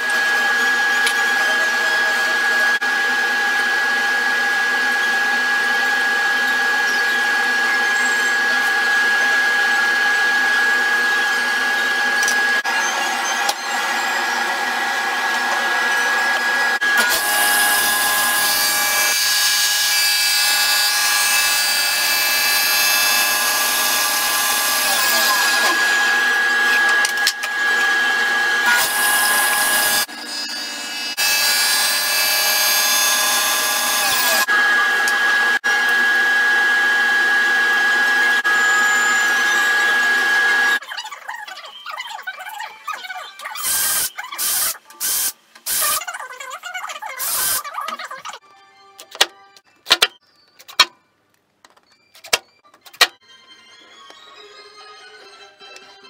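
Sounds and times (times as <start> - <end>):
table saw whining: 0.0 - 40.8
saw blade cutting wood: 4.9 - 36.1, 47.0 - 48.2.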